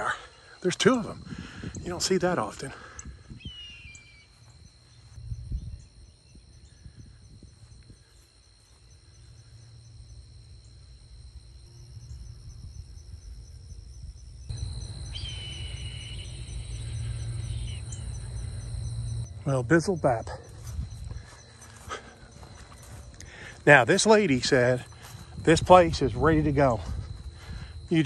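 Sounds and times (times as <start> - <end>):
insects droning: 0.0 - 28.0
low rumble: 9.4 - 19.8.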